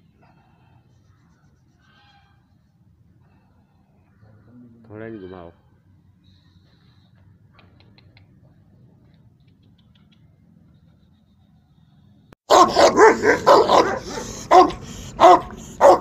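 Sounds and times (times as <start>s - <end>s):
dog barking loudly: 12.5s - 16.0s.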